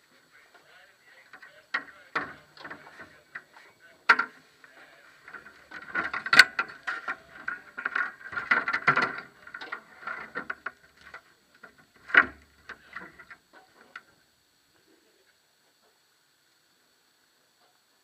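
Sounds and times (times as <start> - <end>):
mechanical clicks and rattles: 4.1 - 14.0.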